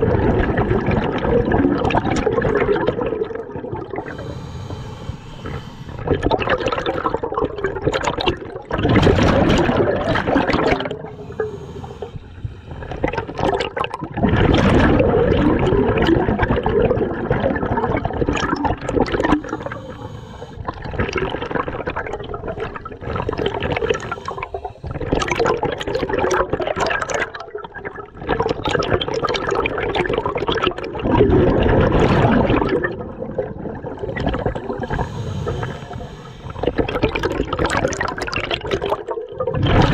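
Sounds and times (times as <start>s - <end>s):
bubbles gurgling: 0.0s - 27.2s
diver breathing through regulator: 3.8s - 8.2s, 8.8s - 14.7s, 18.4s - 26.3s, 34.0s - 38.4s.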